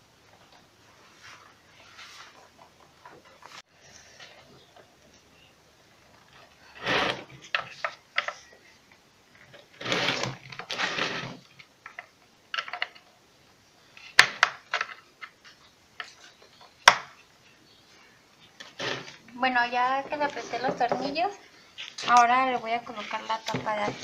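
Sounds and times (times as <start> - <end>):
tool scraping: 6.3 - 8.4, 9.5 - 11.6, 18.5 - 19.3.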